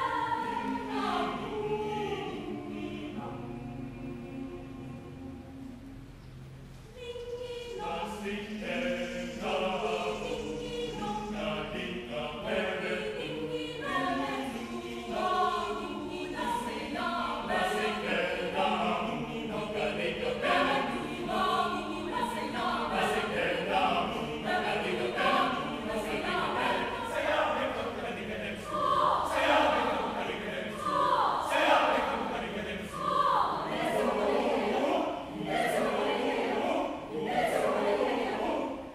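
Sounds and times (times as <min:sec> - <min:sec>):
mixed choir singing in parts: 0:00.0 - 0:06.1, 0:07.0 - 0:38.9.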